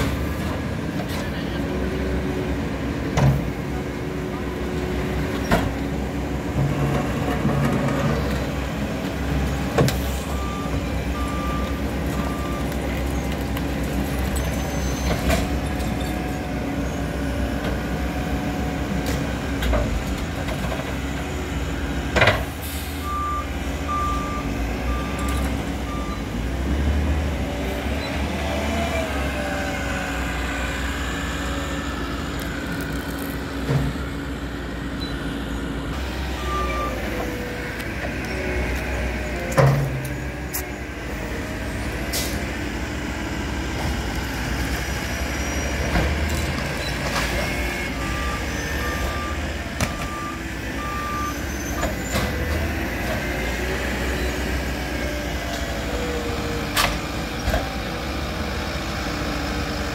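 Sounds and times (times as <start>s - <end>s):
diesel engines running: 0.0s - 59.9s
reversing alarm beeping: 36.0s - 37.4s, 47.9s - 51.7s.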